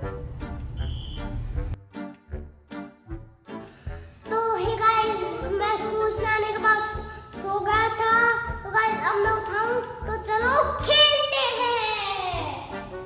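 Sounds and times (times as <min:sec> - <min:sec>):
background music with beat: 0:00.0 - 0:11.0, 0:12.4 - 0:13.0
child singing: 0:04.3 - 0:12.7.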